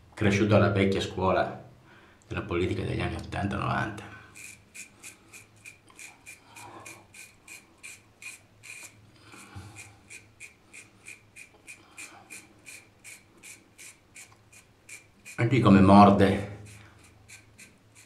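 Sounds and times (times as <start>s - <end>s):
razor scraping stubble: 4.3s - 18.0s.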